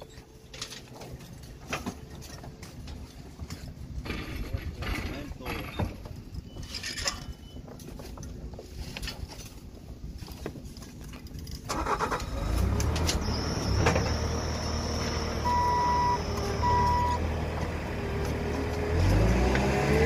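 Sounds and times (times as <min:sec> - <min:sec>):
backup alarm beeps: 0:05.8 - 0:07.8, 0:13.2 - 0:17.2
vehicle engine running: 0:11.8 - 0:20.0.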